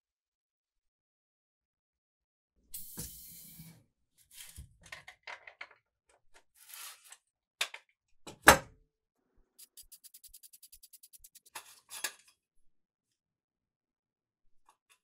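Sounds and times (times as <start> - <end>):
fast run of small ticks: 9.6 - 11.6
metal scrapes and clicks: 9.6 - 12.2.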